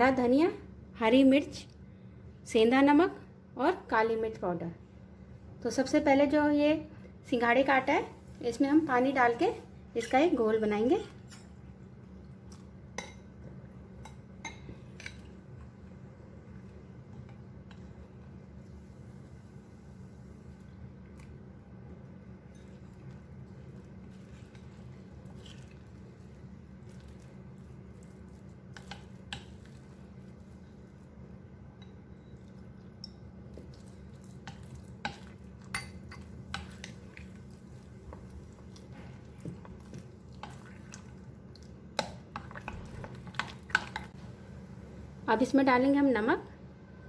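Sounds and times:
spoon stirring batter: 22.4 - 44.2
spoon clinking against glass: 33.0 - 33.2, 35.7 - 36.3.

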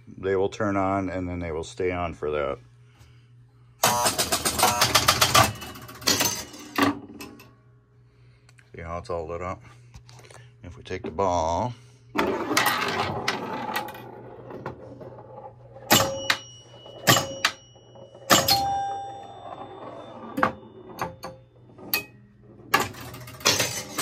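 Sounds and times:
low steady hum: 0.0 - 24.0
pinball scoring bell ringing: 3.8 - 6.8, 15.2 - 24.0.

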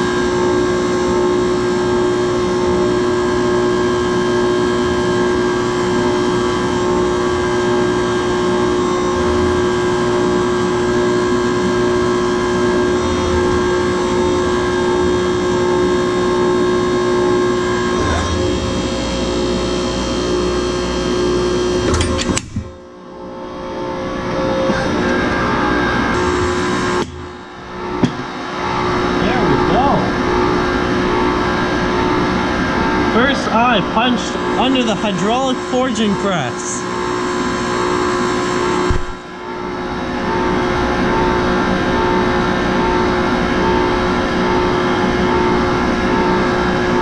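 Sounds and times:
hydraulic power unit whine: 0.0 - 47.0.

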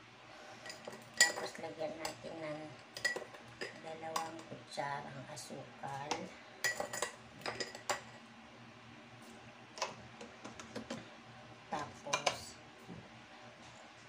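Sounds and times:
spoon and containers clinking: 0.6 - 2.2, 2.9 - 4.5, 6.6 - 8.2.

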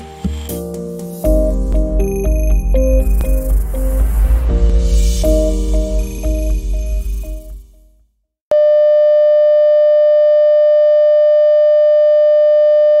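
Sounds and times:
background music: 0.0 - 8.0
steady test pattern tone: 1.2 - 7.9.

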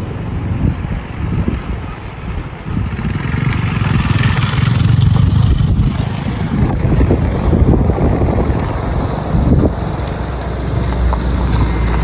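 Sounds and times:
motorcycle engine passing: 2.1 - 9.7.

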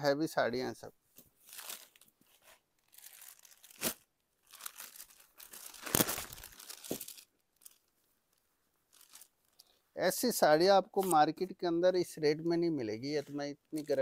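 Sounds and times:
plastic packaging crinkling: 1.4 - 7.9, 8.9 - 9.7, 13.1 - 14.0.

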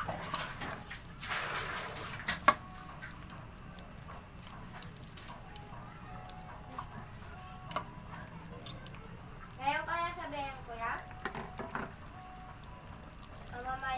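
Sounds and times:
spatula squishing and scraping: 0.0 - 9.5
liquid simmering: 0.0 - 13.9.

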